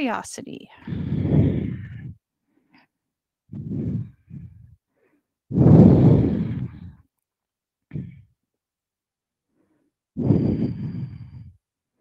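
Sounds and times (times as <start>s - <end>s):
woman breathing: 0.7s - 7.1s, 7.9s - 8.4s, 9.4s - 12.0s.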